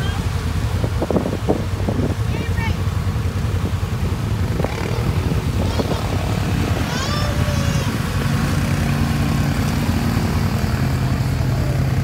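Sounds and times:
atv engine running under load: 0.0 - 12.0
wading through mud water: 0.0 - 12.0.

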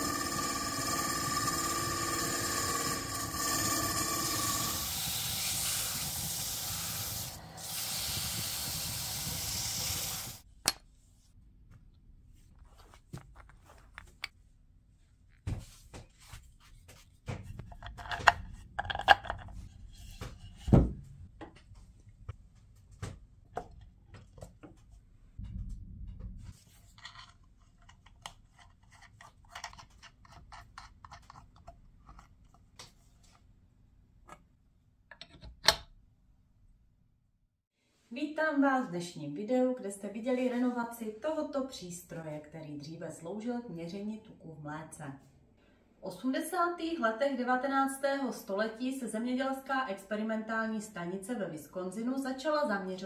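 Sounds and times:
chisel scraping wood: 0.0 - 4.8
wood lathe humming: 0.0 - 7.8
clicks and knocks of handled parts: 26.8 - 33.0.

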